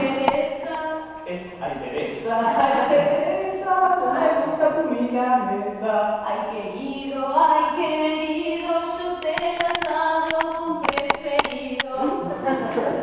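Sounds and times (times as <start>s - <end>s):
voices singing together: 0.0s - 13.0s
sharp clicks: 9.2s - 12.0s.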